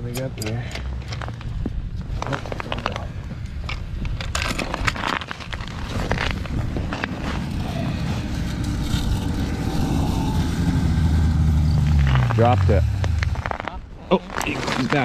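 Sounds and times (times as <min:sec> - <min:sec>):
wind rumbling on microphone: 0:00.9 - 0:15.0
low drone: 0:07.0 - 0:13.6.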